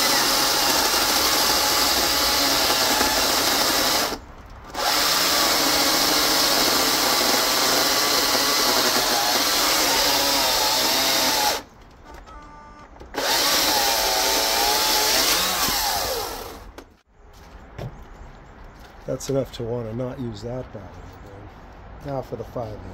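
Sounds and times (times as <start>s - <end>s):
cordless chainsaw cutting log: 0.0s - 11.7s, 13.1s - 16.8s.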